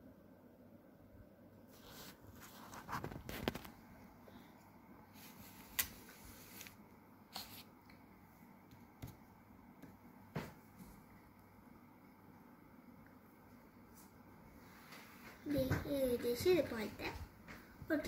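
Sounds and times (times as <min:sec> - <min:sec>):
soft rustles of hands: 0:01.6 - 0:07.8.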